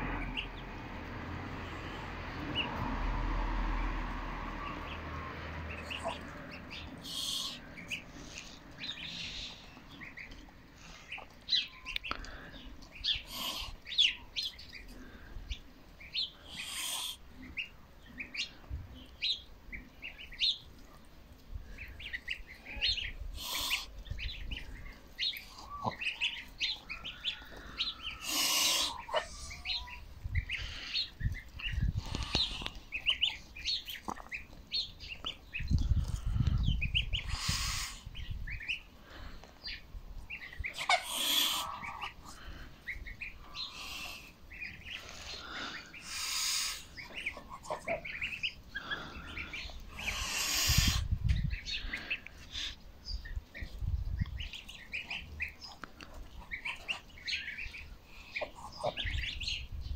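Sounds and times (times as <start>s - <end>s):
goslings peeping: 0.0s - 3.3s, 4.3s - 59.9s
low rumble: 0.0s - 7.0s
hissing bursts: 37.3s - 38.0s, 50.0s - 51.0s.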